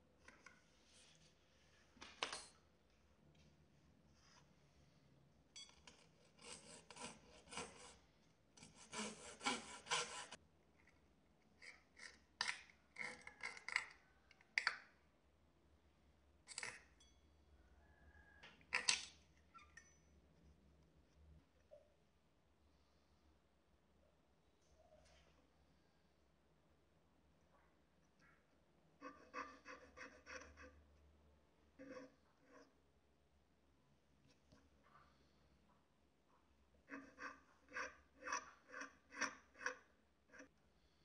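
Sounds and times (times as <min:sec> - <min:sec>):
fine saw cutting wood: 0:06.2 - 0:08.0, 0:08.6 - 0:10.4.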